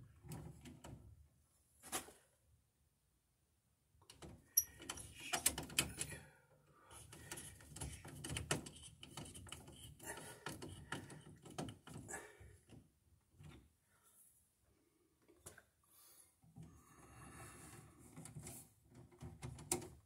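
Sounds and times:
small clicks taps and scrapes: 4.0 - 6.2, 7.0 - 12.1, 18.0 - 20.0.

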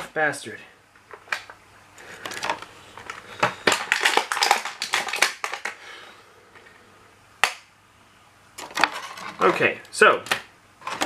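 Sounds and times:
plastic packaging crinkling: 1.4 - 5.9.

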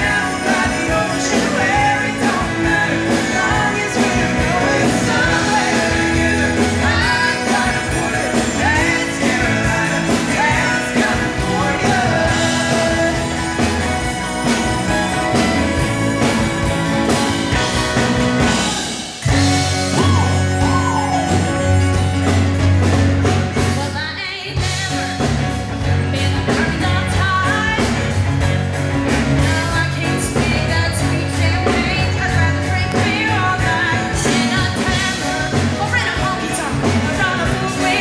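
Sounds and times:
song with heavy low bass: 0.0 - 23.8
country-rock song with singing: 0.0 - 38.0.

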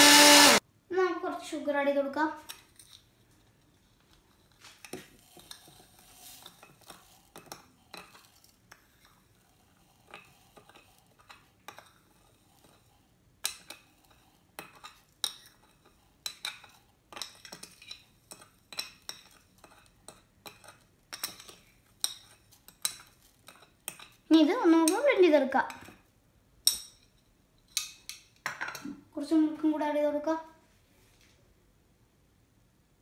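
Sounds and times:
metal spoon scraping a plate: 4.4 - 13.0.

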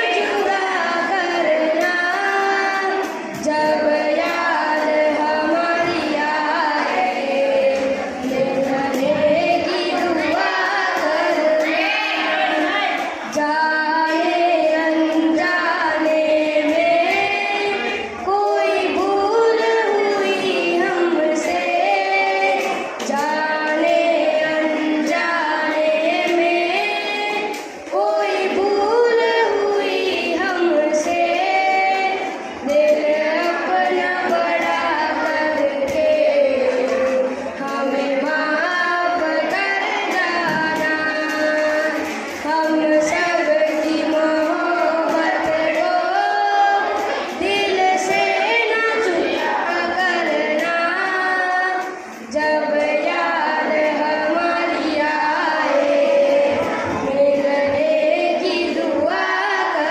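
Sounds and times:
boys singing into a microphone: 0.0 - 59.9.

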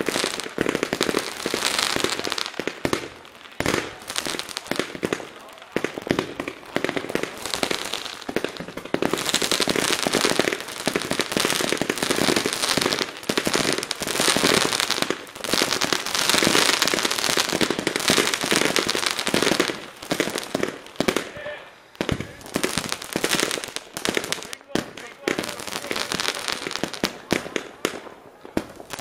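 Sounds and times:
fireworks bangs and crackles: 0.0 - 29.0.

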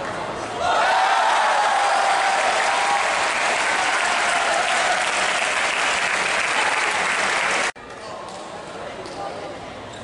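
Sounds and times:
voices cheering: 0.6 - 7.7
crowd applauding: 1.0 - 7.8.

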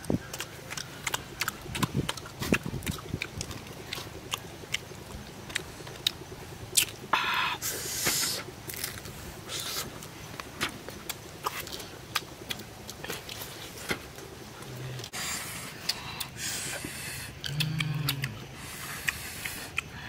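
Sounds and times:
wet chewing and lip-smacking: 0.0 - 7.1, 8.7 - 20.0
breathy hiss: 7.1 - 8.6, 14.7 - 20.0
low mouth hums: 14.6 - 20.0.

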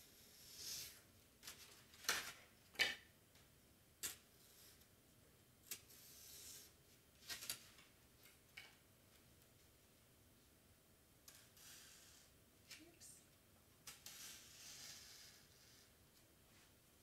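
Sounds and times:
craft knife cutting foam board: 13.9 - 15.8.

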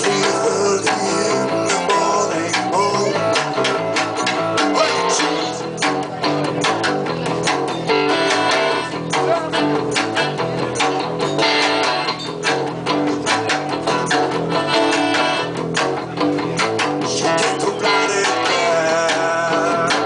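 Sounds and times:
driving drum beat: 0.0 - 20.0
electric guitars: 0.0 - 20.0.

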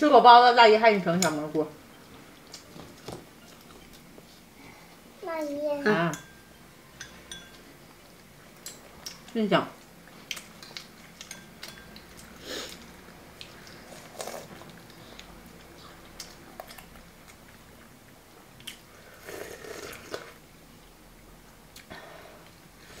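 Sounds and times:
chewing: 10.0 - 18.0
slurping soup: 19.0 - 20.4.

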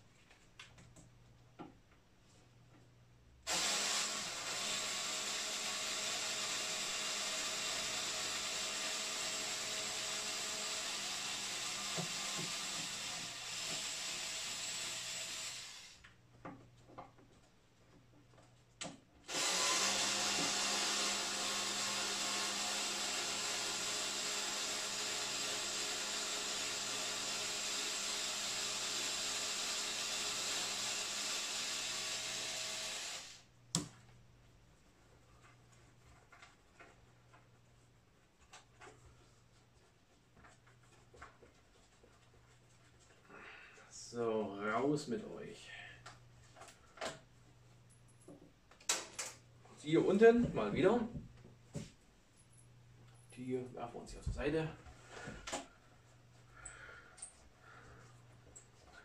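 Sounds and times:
electric screwdriver running: 3.5 - 16.0, 19.3 - 33.4.

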